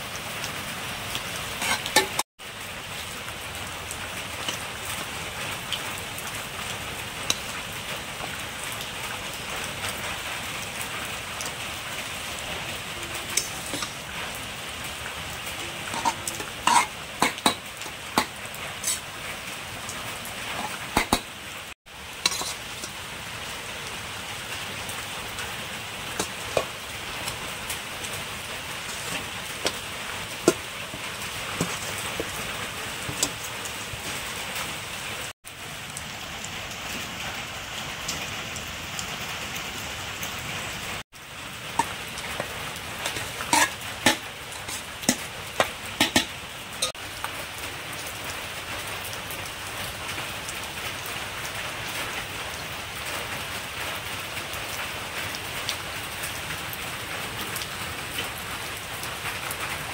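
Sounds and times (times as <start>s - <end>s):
food sizzling in hot oil: 0.0s - 35.4s, 40.0s - 47.7s.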